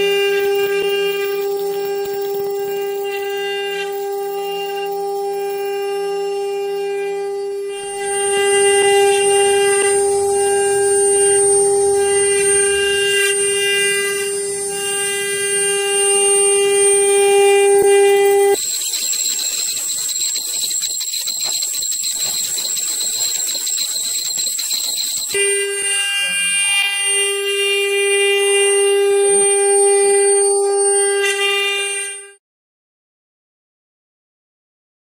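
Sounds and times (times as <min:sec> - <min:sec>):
higher thinner whine with hiss: 0:00.0 - 0:32.3
machine whine: 0:00.0 - 0:32.4.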